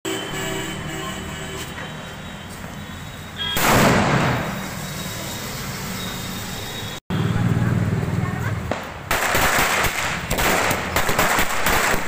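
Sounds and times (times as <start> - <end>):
firecracker bang: 3.5 - 4.7, 8.7 - 12.0.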